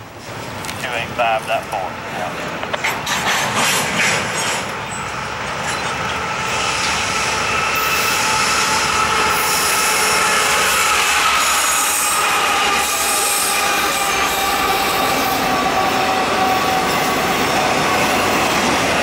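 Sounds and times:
diesel locomotives approaching: 0.0 - 19.0
freight train wheels on rails: 0.0 - 19.0
high flange squeal: 4.9 - 18.5.

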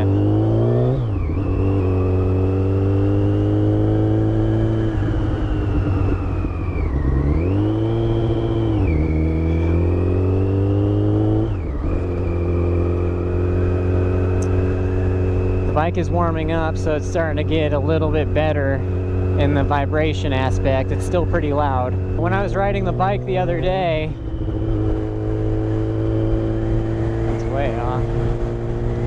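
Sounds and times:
motorcycle engine revving: 0.0 - 29.0.

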